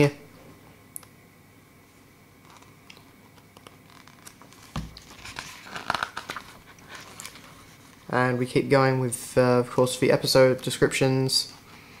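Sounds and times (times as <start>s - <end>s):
paper pages rustling: 3.4s - 8.1s.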